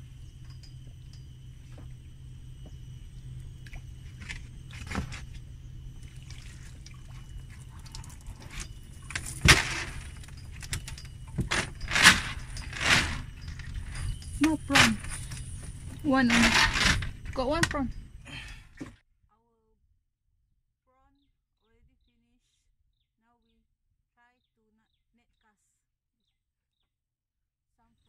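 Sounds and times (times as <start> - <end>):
chain rattling: 0.0 - 18.8
water splashing and dripping: 3.4 - 12.7.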